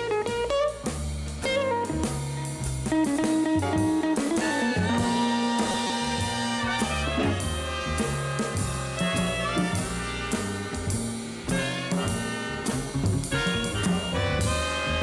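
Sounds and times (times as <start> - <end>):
jazz big band playing: 0.0 - 15.0.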